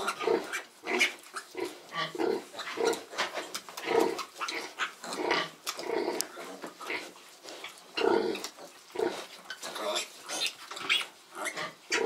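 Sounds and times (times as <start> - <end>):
piglets squeaking: 0.0 - 3.0, 9.5 - 12.0.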